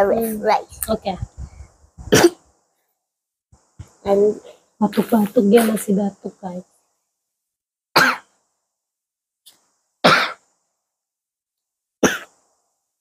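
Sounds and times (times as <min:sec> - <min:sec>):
girl coughing: 0:02.1 - 0:02.4, 0:08.0 - 0:08.3, 0:10.0 - 0:10.4, 0:12.0 - 0:12.3.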